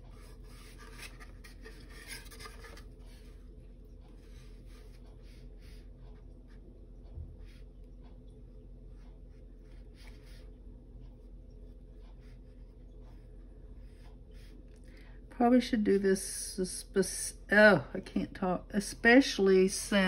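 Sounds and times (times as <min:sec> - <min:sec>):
paintbrush scratchy strokes: 0:00.0 - 0:14.7
faint low hum: 0:00.0 - 0:20.0.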